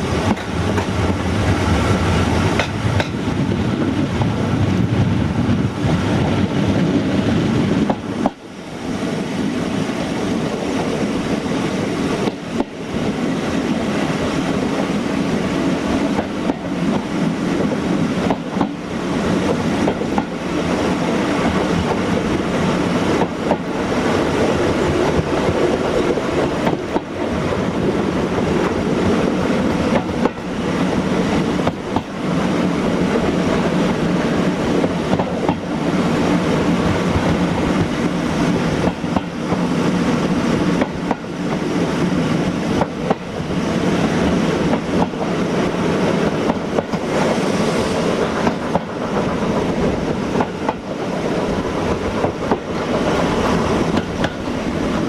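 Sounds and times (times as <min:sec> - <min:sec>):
train wheels rumbling: 0:00.0 - 0:55.0
sharp rail clicks: 0:02.5 - 0:03.2, 0:51.9 - 0:55.0.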